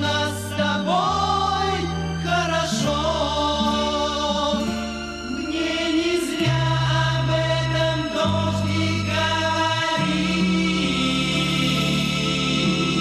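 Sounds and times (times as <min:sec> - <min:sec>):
sustained bass notes: 0:00.0 - 0:13.0.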